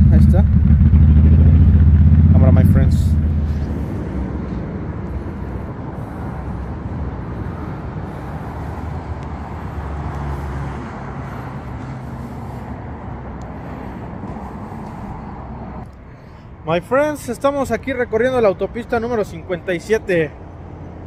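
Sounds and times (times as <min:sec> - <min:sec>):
faint engine-like drone: 0:00.0 - 0:16.5
wind rumble: 0:00.0 - 0:16.6
vehicle noise: 0:00.0 - 0:21.0.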